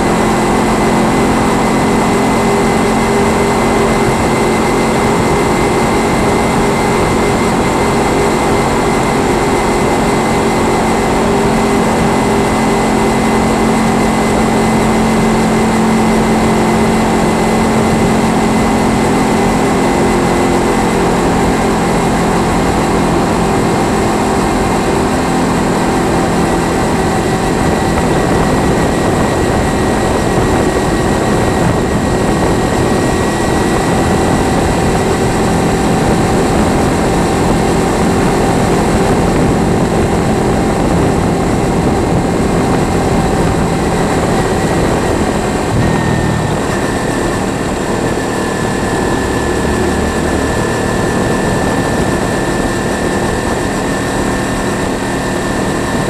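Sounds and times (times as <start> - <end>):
motorcycle engine droning: 0.0 - 56.0
wind and road noise: 0.0 - 56.0.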